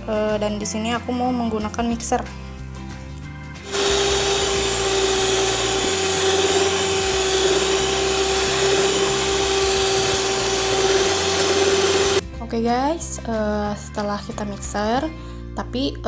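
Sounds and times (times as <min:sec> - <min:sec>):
electric mixer motor whine: 0:03.6 - 0:12.2.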